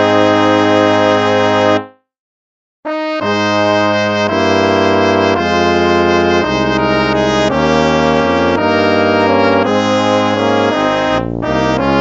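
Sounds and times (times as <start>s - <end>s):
brass playing a hymn: 0.0s - 1.9s, 2.9s - 12.0s.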